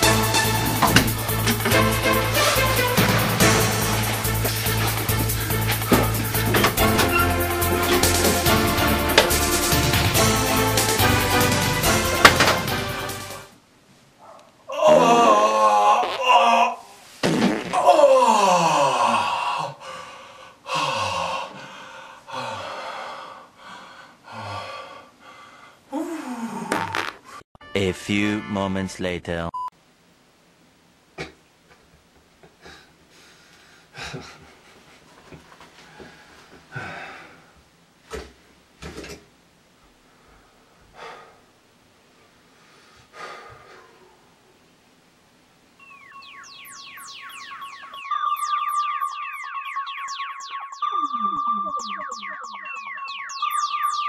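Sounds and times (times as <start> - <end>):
man groaning: 14.7 - 16.9, 17.8 - 19.8.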